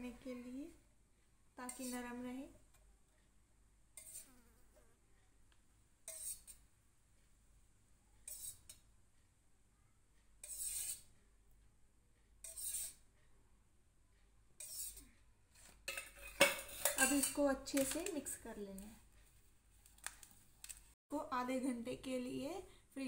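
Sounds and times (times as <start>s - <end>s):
metal spoon scraping steel: 1.6s - 2.2s, 4.0s - 4.4s, 6.0s - 6.7s, 8.2s - 8.8s, 10.4s - 11.1s, 12.4s - 13.1s, 14.6s - 18.3s.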